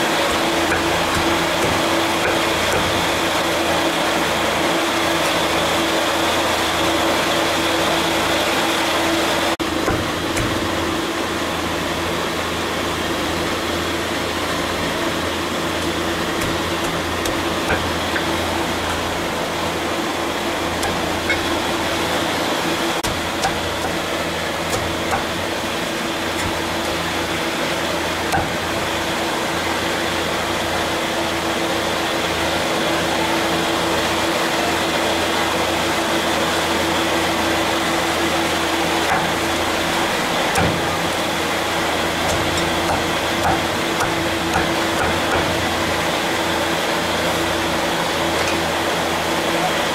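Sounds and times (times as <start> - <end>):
machine hum: 0.0 - 49.9
cleaver chopping on wooden block: 9.8 - 10.7.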